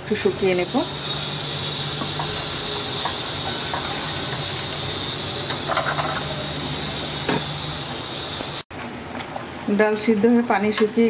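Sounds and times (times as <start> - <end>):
pan boiling hard hiss: 0.1 - 8.7.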